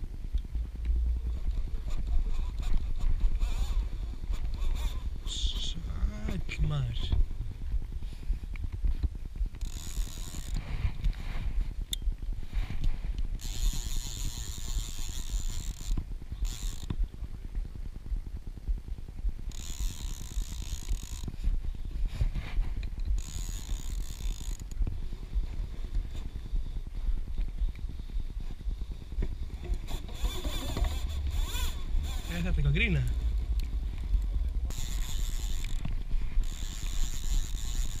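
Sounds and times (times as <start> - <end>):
low wind rumble on microphone: 0.0 - 38.0
fishing reel ratchet buzzing: 1.2 - 6.9, 9.5 - 11.1, 13.3 - 17.1, 19.4 - 24.9, 28.7 - 38.0.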